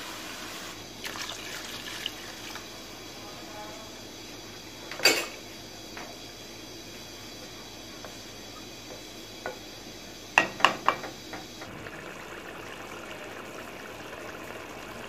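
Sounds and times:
curry bubbling in a pot: 0:00.4 - 0:02.7, 0:06.3 - 0:15.0.

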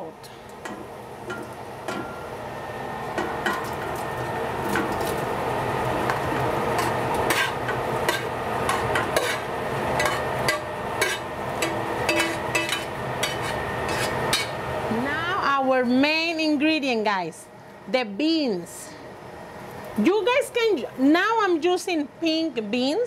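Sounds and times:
meat sizzling: 0:00.5 - 0:14.9
spoon scraping a pot: 0:06.8 - 0:14.6.

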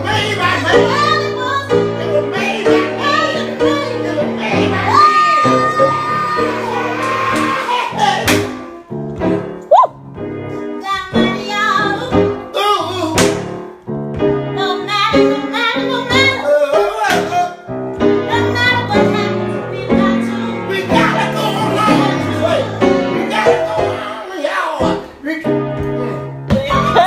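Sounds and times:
gospel singing: 0:00.0 - 0:08.6, 0:18.3 - 0:25.1
piano: 0:00.0 - 0:27.0.

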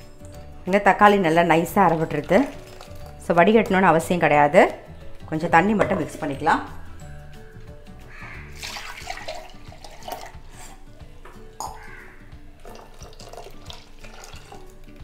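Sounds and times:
water sloshing in a steel jar: 0:01.0 - 0:04.2, 0:08.5 - 0:10.8, 0:12.6 - 0:14.7
water pouring into a steel pot: 0:01.7 - 0:03.2, 0:08.5 - 0:10.7, 0:12.6 - 0:14.8
metal jar knocking against pot: 0:05.7 - 0:06.4, 0:11.6 - 0:11.9.

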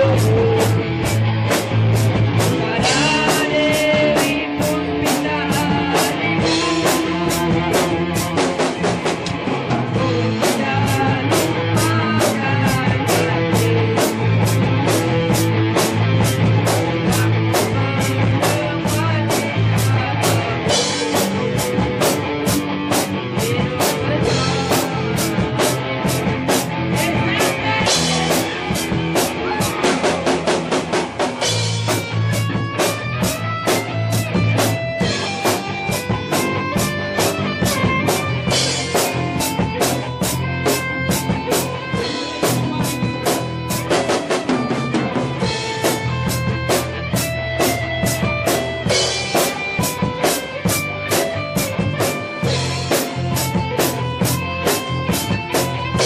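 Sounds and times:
drum kit beat: 0:00.0 - 0:56.0
electric bass: 0:00.0 - 0:56.0
electric guitar: 0:00.0 - 0:56.0.

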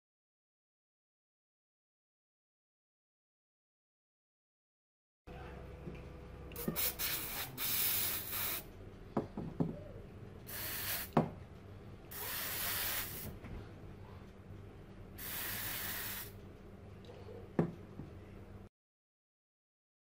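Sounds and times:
aerosol spray hissing: 0:06.6 - 0:08.7, 0:10.5 - 0:11.2, 0:12.1 - 0:13.4, 0:15.2 - 0:16.4.

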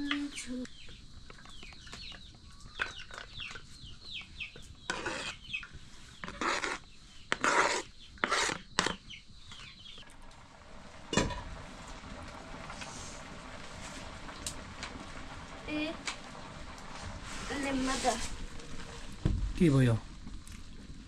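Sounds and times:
utensil scraping cooking pot: 0:04.6 - 0:09.1
knock: 0:19.2 - 0:19.5.

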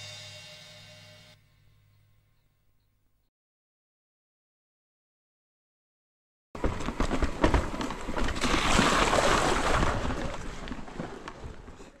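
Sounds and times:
bike wheel knocking on rock: 0:06.6 - 0:08.5
tyres splashing through water: 0:08.1 - 0:11.6.

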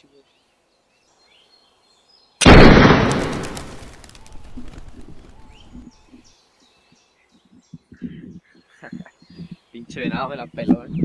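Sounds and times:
rifle shot with echo: 0:02.4 - 0:04.1.

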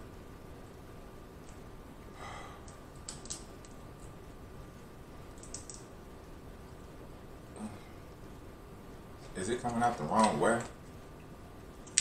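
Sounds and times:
crab shell cracking: 0:02.7 - 0:03.8.

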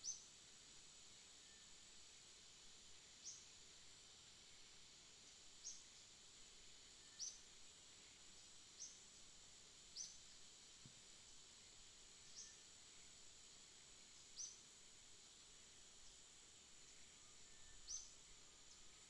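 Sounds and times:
small bird chirping: 0:00.0 - 0:00.3, 0:03.2 - 0:03.5, 0:05.6 - 0:06.0, 0:07.0 - 0:07.5, 0:08.7 - 0:09.0, 0:09.9 - 0:10.3, 0:12.2 - 0:13.0, 0:14.2 - 0:14.7, 0:17.2 - 0:19.0
steady high hiss: 0:00.0 - 0:19.0.

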